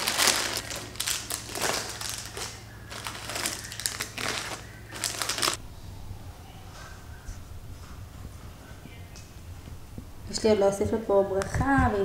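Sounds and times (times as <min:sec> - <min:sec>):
plastic candy wrappers crinkling: 0:00.0 - 0:05.6.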